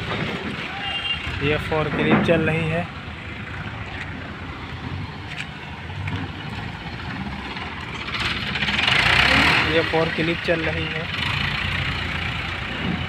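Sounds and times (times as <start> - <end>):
forklift engine idling: 5.9 - 13.0.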